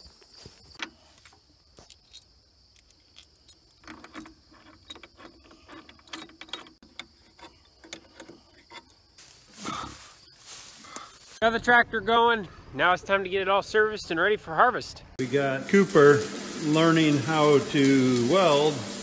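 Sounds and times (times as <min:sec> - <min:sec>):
ratchet wrench clicking on metal: 0:01.8 - 0:08.8.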